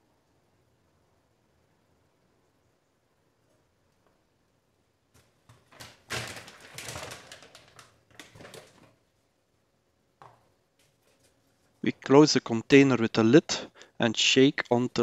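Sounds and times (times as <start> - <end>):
plastic pouch rustling: 5.7 - 9.0.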